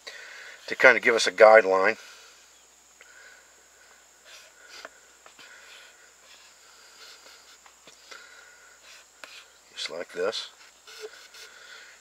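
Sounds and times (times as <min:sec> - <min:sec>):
knife scraping a stick: 0:04.2 - 0:09.6, 0:10.4 - 0:11.9.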